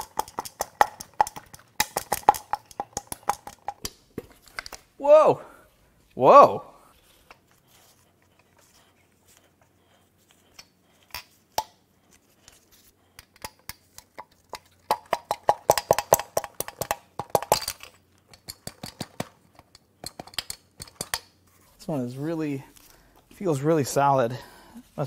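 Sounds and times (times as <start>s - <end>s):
metal-on-metal tapping and clinking: 14.5s - 21.3s.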